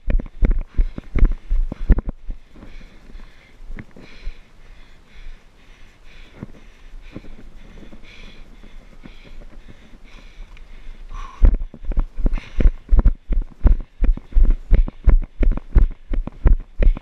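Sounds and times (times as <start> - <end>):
runner breathing heavily: 0.0 - 17.0
running footfalls thudding: 11.4 - 17.0.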